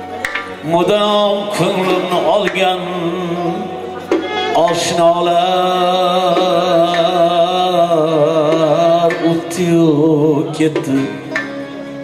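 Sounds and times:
live band with guitar and synthesizer: 0.0s - 12.0s.

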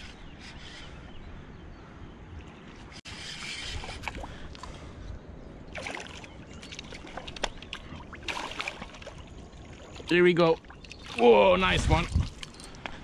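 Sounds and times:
fish splashing at water surface: 5.7s - 11.2s.

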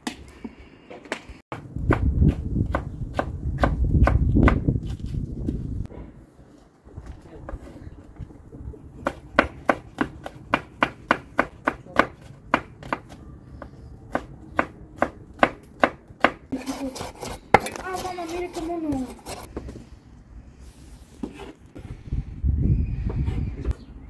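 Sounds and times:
knife chopping on wooden board: 9.0s - 16.4s
person speaking: 16.5s - 19.5s.

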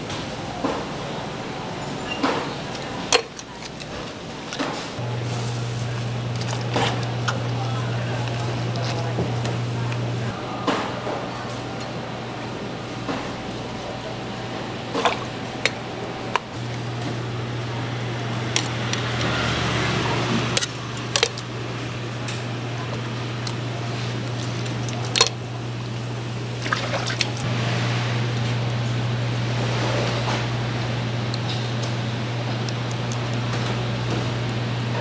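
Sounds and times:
steady low hum: 2.4s - 35.0s
water splashing: 14.9s - 15.8s, 24.1s - 27.5s.

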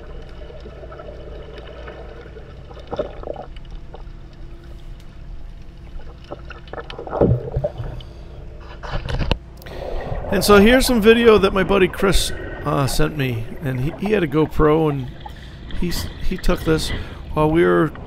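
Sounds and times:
low underwater rumble: 0.0s - 18.0s
breathing through a snorkel: 9.6s - 10.4s, 16.9s - 17.3s.

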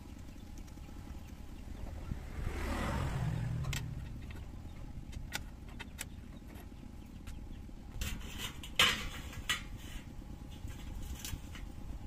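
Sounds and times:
steady low rumble: 0.0s - 12.0s
vehicle passing by: 1.4s - 4.9s.

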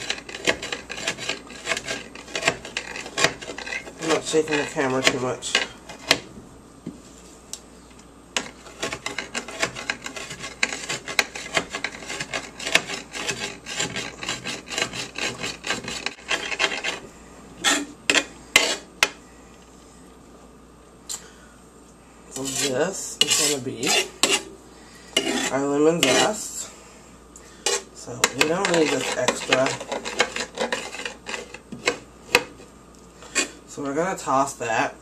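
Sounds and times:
knife scraping on glass: 0.0s - 6.2s, 8.4s - 17.0s, 17.6s - 18.9s, 22.4s - 24.5s, 25.2s - 26.4s, 27.6s - 32.6s, 33.3s - 33.6s.

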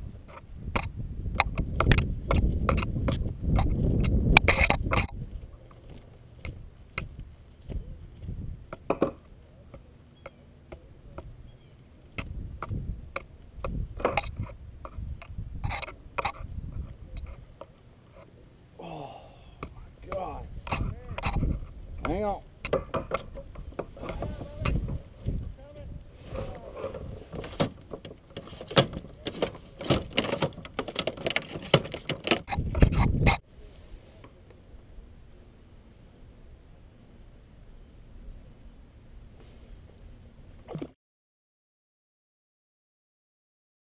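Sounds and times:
fishing gear rattling: 26.7s - 33.0s.

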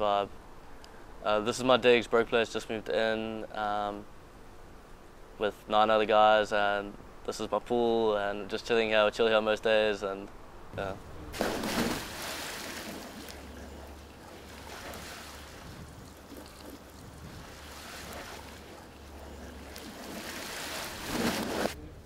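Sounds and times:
pool water splashing: 11.3s - 21.8s.

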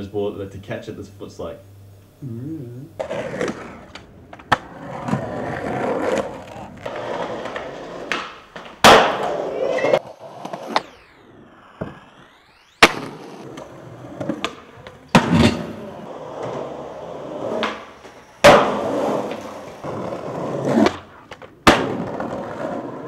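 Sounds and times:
skateboard clacks popping and landing: 3.0s - 11.0s, 12.8s - 23.0s
skateboard wheels rolling on concrete: 3.0s - 23.0s.

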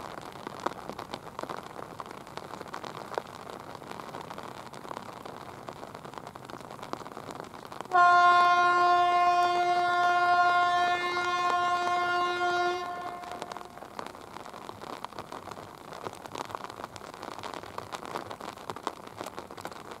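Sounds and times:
rain hissing: 0.0s - 20.0s
train horn blast: 7.9s - 13.9s.

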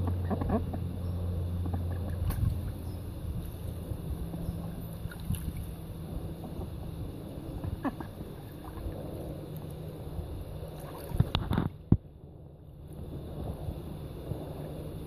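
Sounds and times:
wind on microphone: 2.0s - 12.1s
ducks splashing in water: 5.0s - 6.7s, 7.5s - 9.0s, 10.7s - 11.4s.

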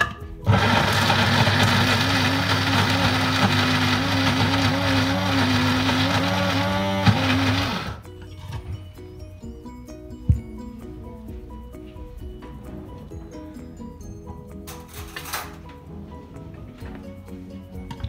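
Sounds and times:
electric blender running: 0.5s - 8.0s.

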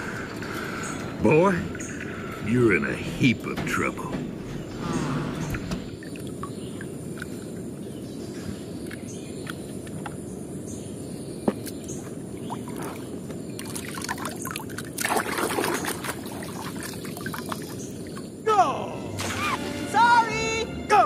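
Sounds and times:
muddy water sloshing: 11.5s - 18.4s
water splash: 12.5s - 17.8s, 19.2s - 20.2s.

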